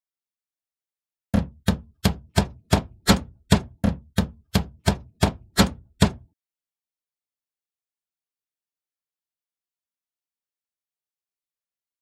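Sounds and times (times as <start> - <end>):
hammer tapping wooden dowel: 1.4 - 6.2.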